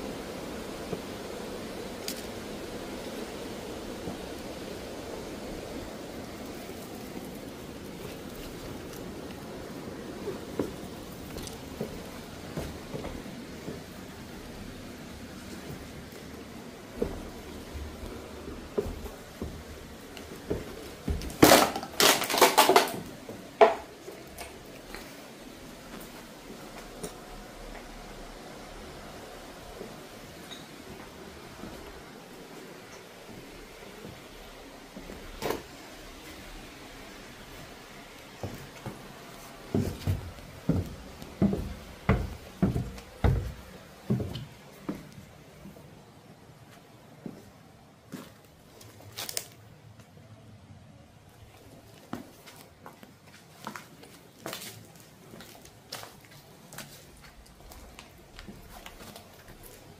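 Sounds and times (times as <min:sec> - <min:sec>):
footsteps with dull thuds: 0:07.1 - 0:21.6, 0:30.8 - 0:45.9, 0:51.6 - 0:59.9
hard objects clattering: 0:21.1 - 0:23.9.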